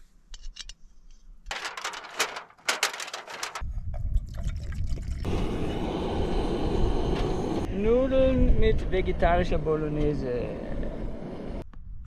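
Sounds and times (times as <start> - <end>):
foil pouch crinkling: 1.5 - 3.6.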